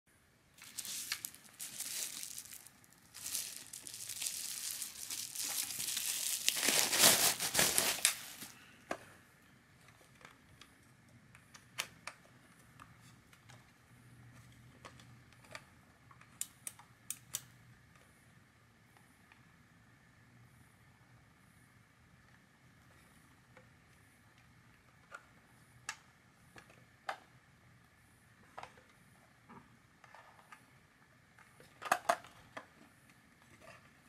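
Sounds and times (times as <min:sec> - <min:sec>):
bubble wrap crinkling: 0:00.6 - 0:08.6.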